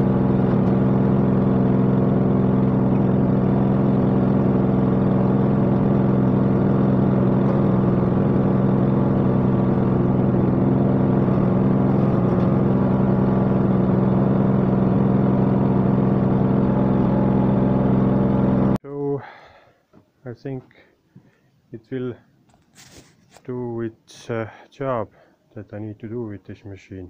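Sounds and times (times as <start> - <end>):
gas engine running steadily: 0.0 - 18.8.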